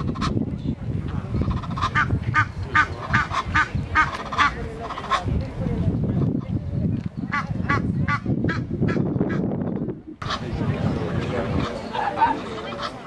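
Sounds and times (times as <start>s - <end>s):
geese honking: 1.4s - 5.3s, 10.2s - 13.0s.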